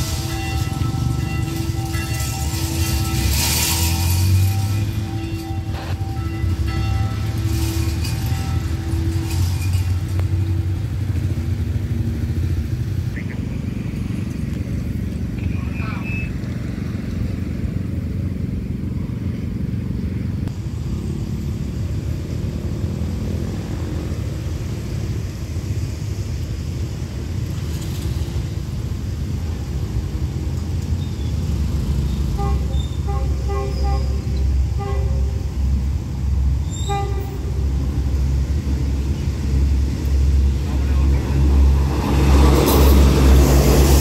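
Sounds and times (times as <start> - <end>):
low rumble of diesel train: 0.0 - 44.0
road traffic idling: 0.0 - 44.0
train horn short toots: 32.2 - 35.7, 36.6 - 37.8.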